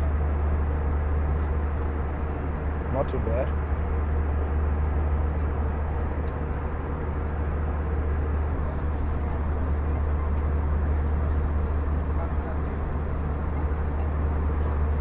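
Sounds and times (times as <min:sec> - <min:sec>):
airplane cabin rumble: 0:00.0 - 0:15.0.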